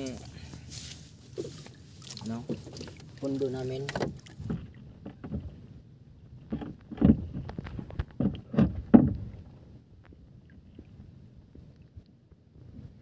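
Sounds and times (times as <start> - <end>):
knocks against wooden boat hull: 6.5 - 9.3.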